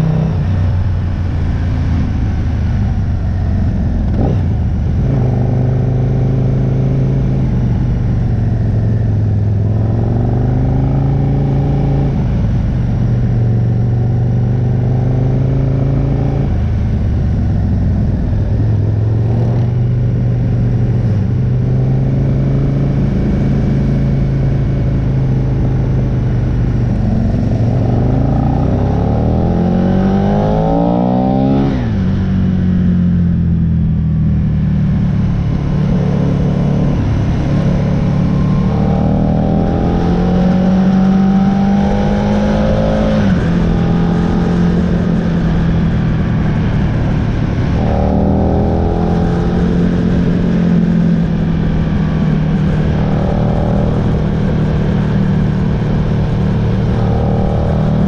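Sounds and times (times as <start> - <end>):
motorcycle engine revving: 0.0 - 58.0
wind and road noise: 0.0 - 58.0.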